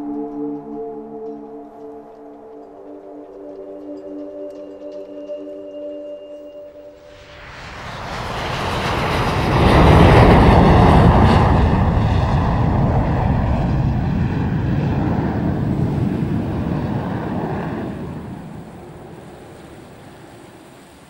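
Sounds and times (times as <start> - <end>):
loud rushing roar with deep rumble: 7.1 - 19.2.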